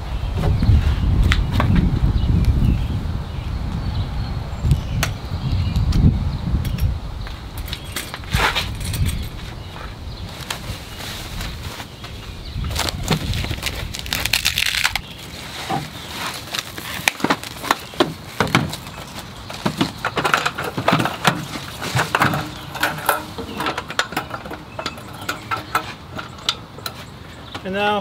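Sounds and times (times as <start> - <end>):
plastic packaging crinkling: 12.7 - 19.3.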